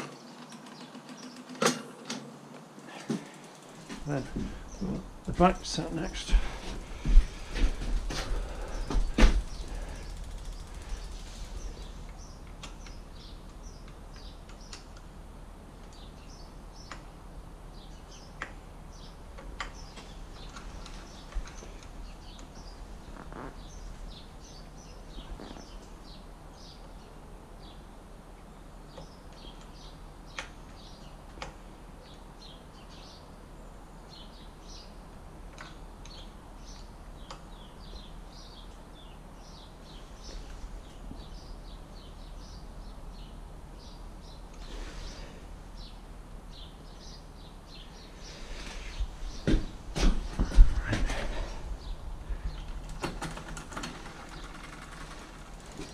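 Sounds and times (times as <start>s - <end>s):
small birds chirping: 2.8s - 15.2s, 15.8s - 55.9s
bicycle gear clicks and taps: 7.0s - 15.1s, 52.5s - 55.9s.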